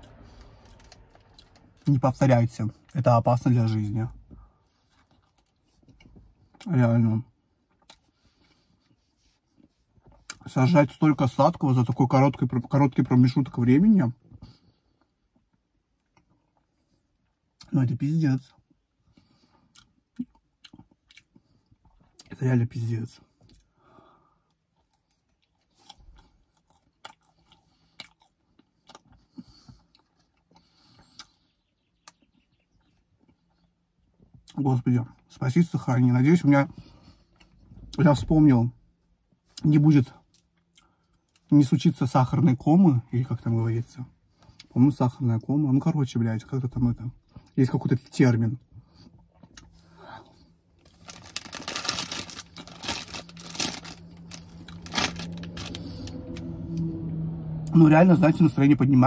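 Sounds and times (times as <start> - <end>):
person chewing cake: 7.6 - 9.0, 19.1 - 22.4, 24.7 - 31.4, 48.8 - 54.9
foil wrapper crinkling: 50.8 - 56.1.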